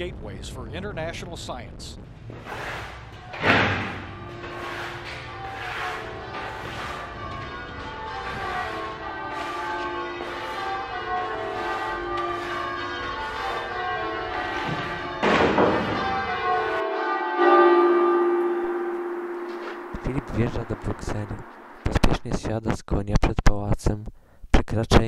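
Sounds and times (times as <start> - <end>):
bells ringing in a fast peal: 4.1 - 21.9
noisy bell clash: 11.7 - 22.0.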